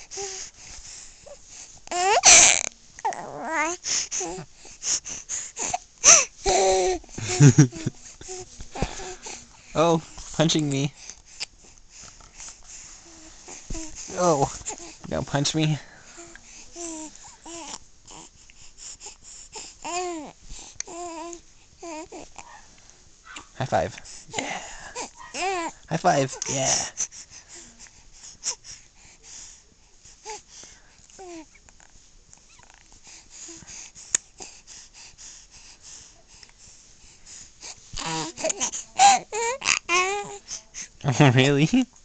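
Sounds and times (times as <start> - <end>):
baby wheezy breathing: 0.0 - 9.8, 11.0 - 15.1, 23.3 - 29.6, 33.0 - 41.0
baby cooing: 1.9 - 4.5, 5.6 - 7.5, 16.2 - 18.3, 19.8 - 22.4, 25.0 - 25.7, 38.0 - 40.4
baby fussing: 1.9 - 9.5, 13.1 - 15.0, 19.0 - 22.6, 23.2 - 23.6, 24.3 - 27.1, 37.6 - 40.9.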